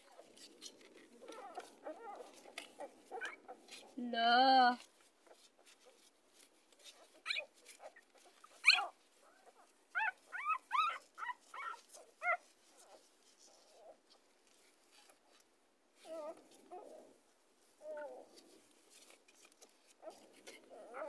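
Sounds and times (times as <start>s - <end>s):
puppies squeaking and whimpering: 0.0s - 4.0s, 6.9s - 13.0s, 17.8s - 21.0s.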